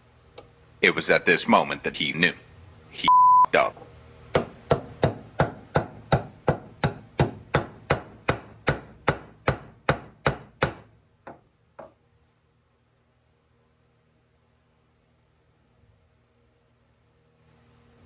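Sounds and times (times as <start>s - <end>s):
small hammer tapping metal: 4.3s - 12.0s.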